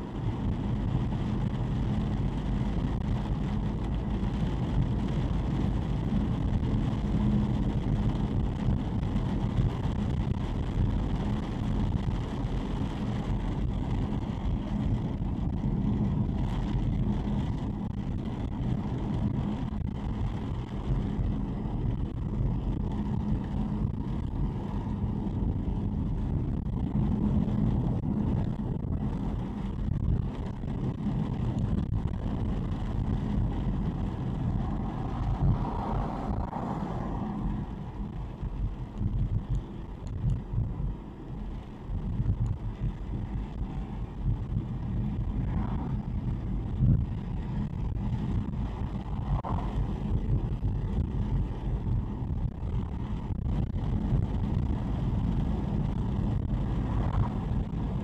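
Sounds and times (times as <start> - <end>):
car engine hum: 0.0 - 58.0
wind against car body: 0.0 - 58.0
tyres on wet asphalt: 29.1 - 53.1.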